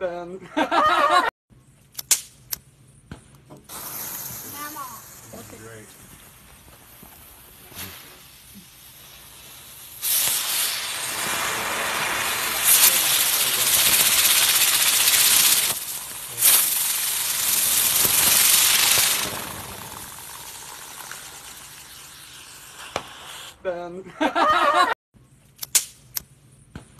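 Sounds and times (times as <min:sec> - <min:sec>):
firework hissing: 0:03.6 - 0:23.7.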